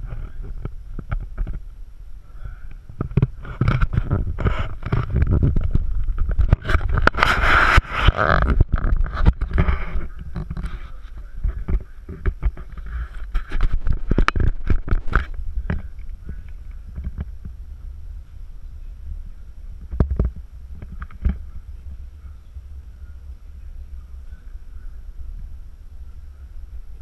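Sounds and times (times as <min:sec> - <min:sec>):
camera handling rumble: 0:00.0 - 0:01.7, 0:02.7 - 0:17.6, 0:19.8 - 0:21.5
small knocks and scrapes: 0:02.9 - 0:17.5, 0:19.9 - 0:21.4.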